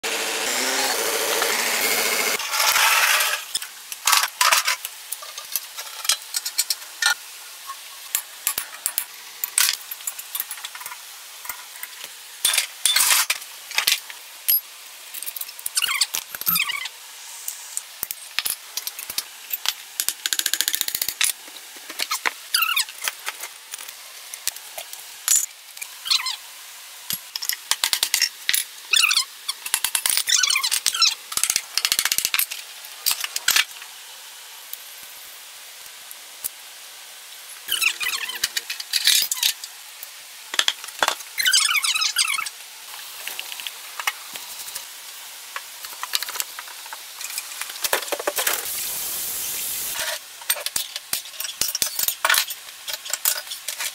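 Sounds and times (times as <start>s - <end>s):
squeaky metal scrapes: 37.7s - 38.6s.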